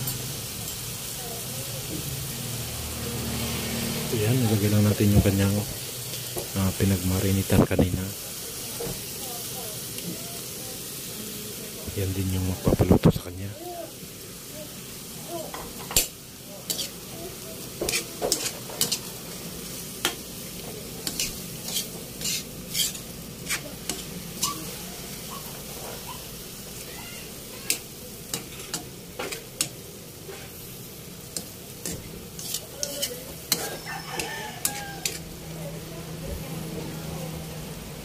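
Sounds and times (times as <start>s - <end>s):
meat sizzling in a wok: 0.0s - 38.0s
metal spatula scraping a pan: 15.9s - 17.0s, 17.8s - 19.2s, 21.0s - 26.1s, 31.3s - 35.3s.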